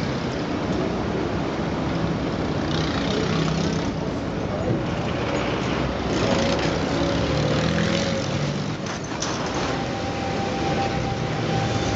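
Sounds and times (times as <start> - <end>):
cars driving past: 4.8 - 11.9
thin steady whine: 9.2 - 11.9.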